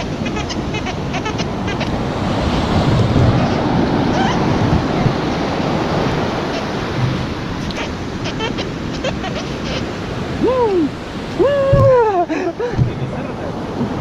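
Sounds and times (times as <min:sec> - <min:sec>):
surf washing over sand: 0:00.0 - 0:14.0.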